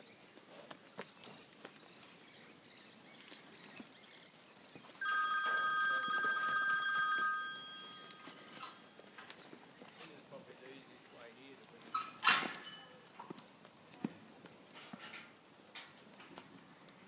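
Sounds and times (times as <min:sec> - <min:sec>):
electronic telephone ringing: 0:05.0 - 0:08.8.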